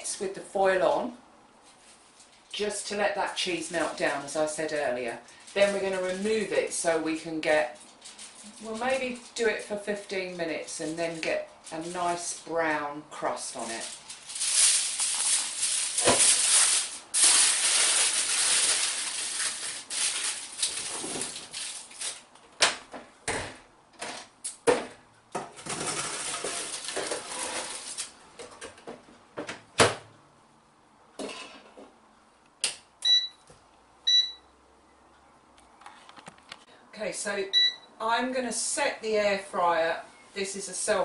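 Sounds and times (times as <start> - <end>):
aluminium foil tearing and crinkling: 13.6 - 22.3, 25.7 - 28.2
short electronic beeps: 33.0 - 33.4, 34.1 - 34.5, 37.5 - 37.9.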